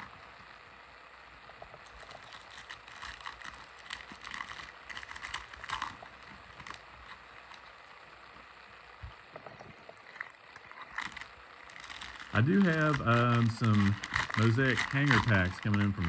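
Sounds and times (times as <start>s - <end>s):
foil wrappers crinkling and tearing: 1.6s - 7.8s, 9.4s - 16.0s
cards sliding and clicking: 10.8s - 16.0s.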